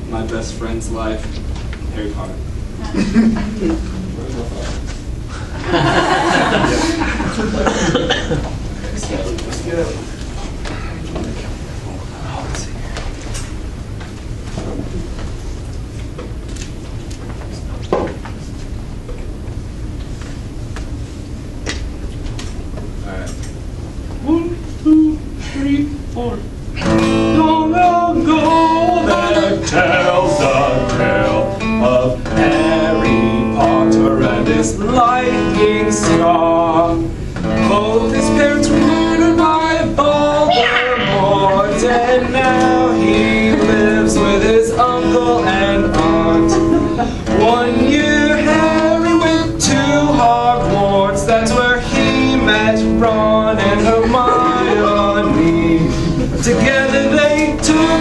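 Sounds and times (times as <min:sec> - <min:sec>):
guitar: 0:21.6 - 0:58.0
man singing: 0:27.1 - 0:58.0.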